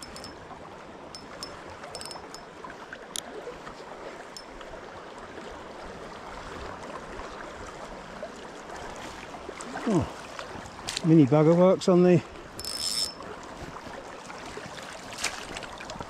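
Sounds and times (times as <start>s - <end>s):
faint high ticks: 0.0s - 0.4s, 1.1s - 2.5s, 12.6s - 13.2s
river water rushing: 0.0s - 11.4s.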